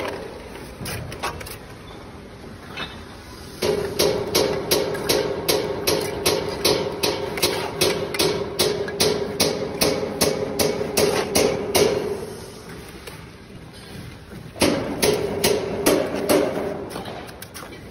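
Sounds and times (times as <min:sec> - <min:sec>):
trowel tapping bricks: 0:03.6 - 0:12.0.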